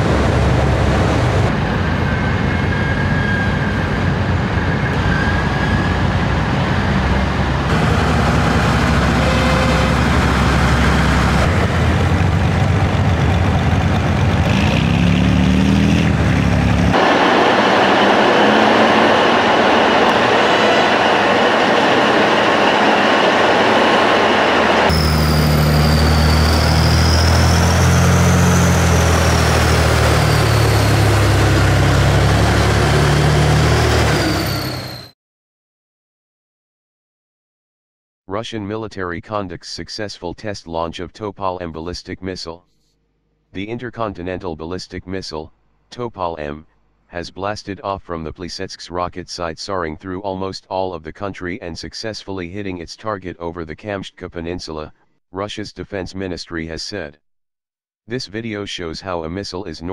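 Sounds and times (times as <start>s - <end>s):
heavy diesel truck engines: 0.0s - 35.1s.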